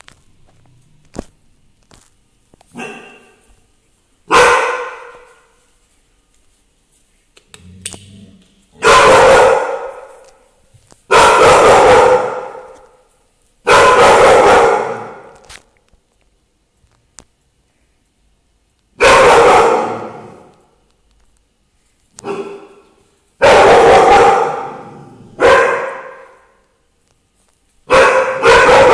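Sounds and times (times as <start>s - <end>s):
dog barking: 2.7s - 3.5s, 4.3s - 5.5s, 8.8s - 10.3s, 11.1s - 13.0s, 13.6s - 15.4s, 19.0s - 20.4s, 22.2s - 26.6s, 27.9s - 28.9s.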